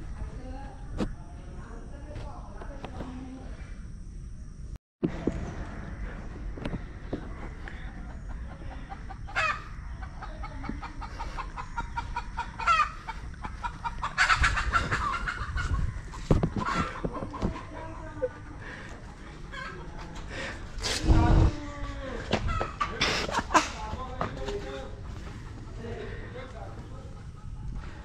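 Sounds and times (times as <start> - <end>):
chickens clucking: 6.6 - 20.8, 22.3 - 28.0.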